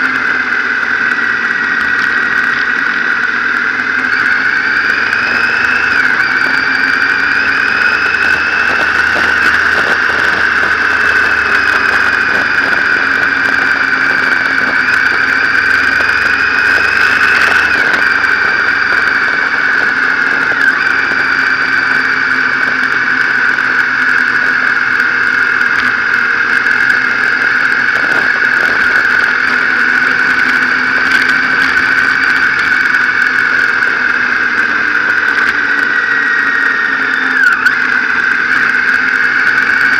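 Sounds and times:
high-pitched whine: 0.0s - 39.9s
motorcycle engine running: 0.0s - 39.9s
wind noise: 0.0s - 39.9s.

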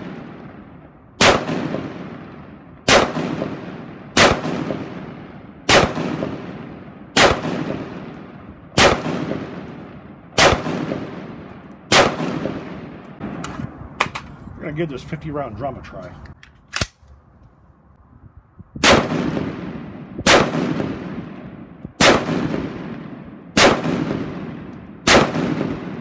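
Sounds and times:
rifle shots echoing: 0.0s - 13.4s, 18.8s - 26.0s.

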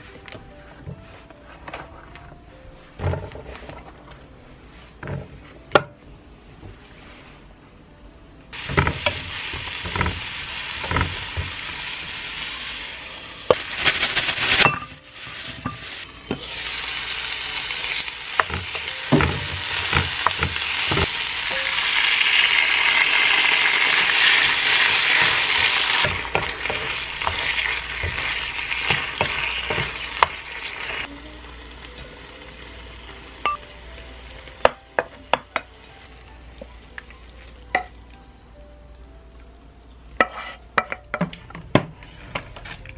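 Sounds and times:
food sizzling in a frying pan: 8.5s - 38.2s.

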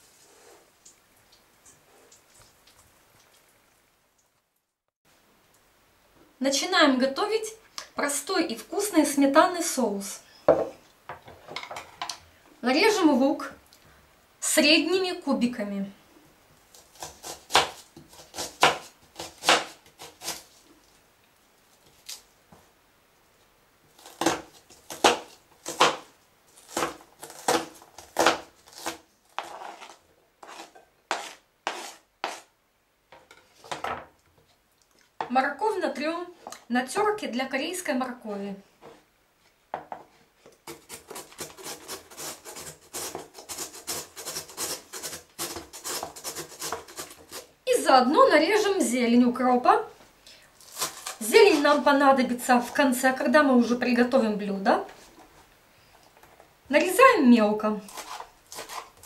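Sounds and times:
carrot rasping on grater: 29.4s - 32.4s, 40.7s - 47.5s, 57.9s - 59.0s.

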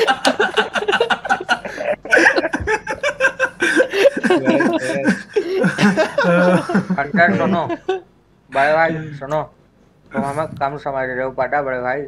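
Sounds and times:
man laughing hard: 0.0s - 8.0s.

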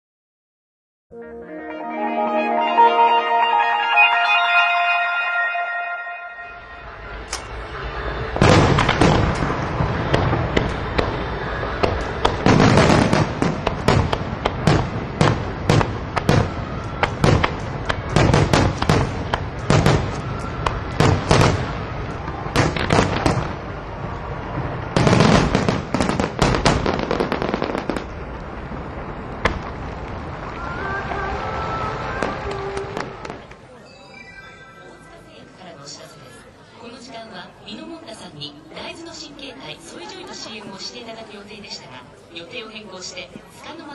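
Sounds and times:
fireworks bursting: 6.8s - 33.7s.

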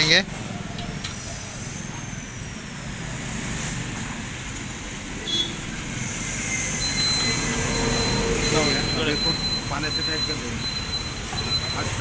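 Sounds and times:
hiss: 1.0s - 4.1s, 5.7s - 7.7s
thin high whine: 5.9s - 9.5s.

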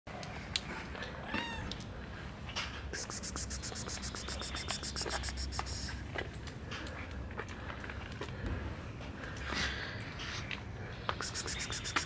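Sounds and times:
kitten meowing: 1.2s - 1.8s.

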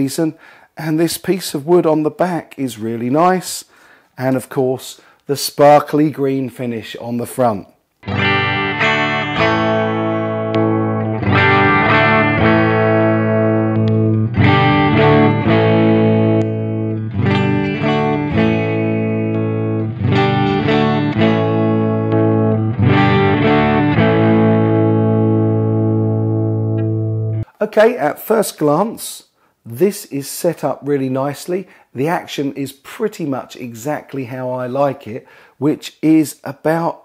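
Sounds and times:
electric guitar chords strummed: 8.0s - 27.5s.

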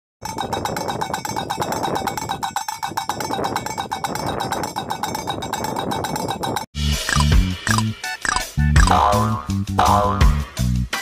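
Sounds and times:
low rush of wind: 0.2s - 6.7s
windmill striker clanking on tin cans: 0.2s - 7.2s.

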